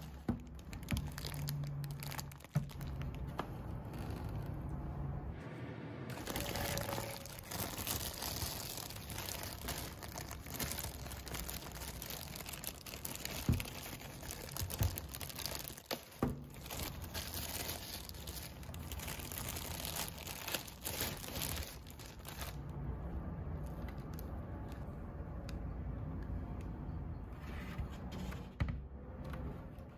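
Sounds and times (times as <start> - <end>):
plastic bag crinkling: 0.0 - 4.7, 6.1 - 22.7.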